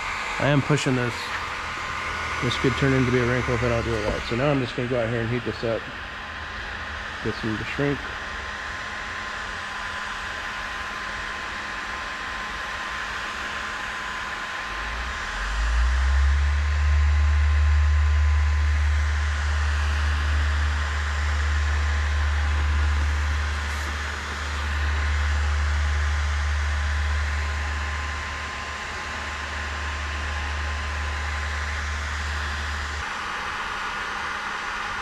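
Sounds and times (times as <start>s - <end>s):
heat gun fan hissing: 0.0s - 33.0s
deep low rumble: 14.7s - 28.4s.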